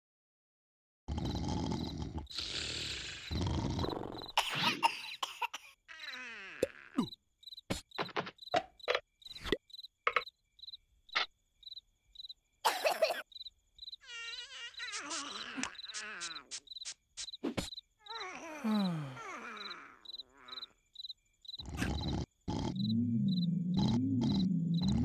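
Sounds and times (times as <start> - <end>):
crickets chirping: 2.7 - 6.3, 7.0 - 25.0.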